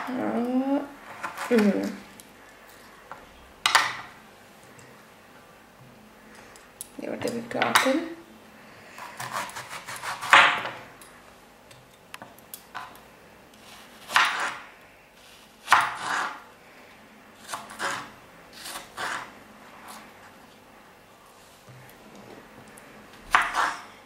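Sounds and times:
knife cutting apple on wooden board: 9.0 - 10.8, 13.6 - 14.6, 15.6 - 16.4, 17.4 - 20.0, 23.3 - 23.9.

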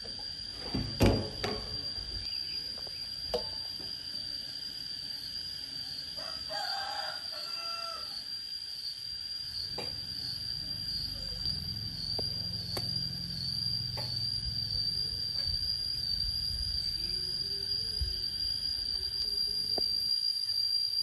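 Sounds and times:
high-pitched whine: 0.1 - 21.0
rooster crowing: 6.0 - 8.4.

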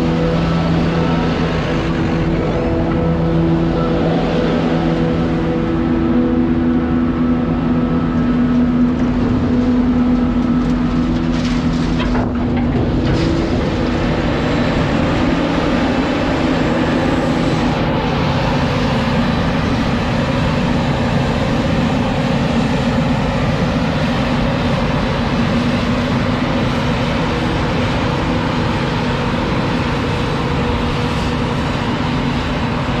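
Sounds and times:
tractor engine humming: 0.0 - 33.0.

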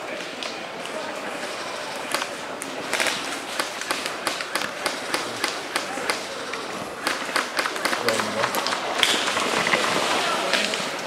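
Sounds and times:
airsoft guns firing: 2.9 - 6.4, 7.0 - 9.4.

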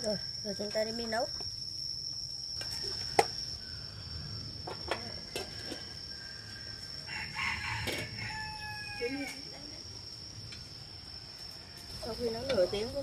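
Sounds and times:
rooster crowing: 6.0 - 9.6.

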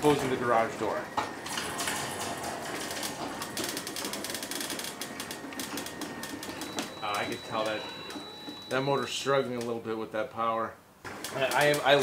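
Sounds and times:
garage door opener rattling: 0.0 - 7.0.

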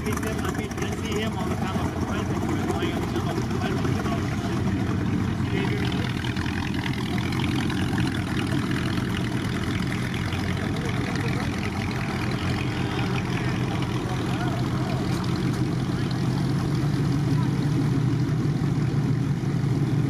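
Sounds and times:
people talking: 0.0 - 4.8, 5.4 - 6.2, 10.5 - 11.8, 12.4 - 16.6, 17.2 - 17.8
car engine idling: 0.0 - 20.0.

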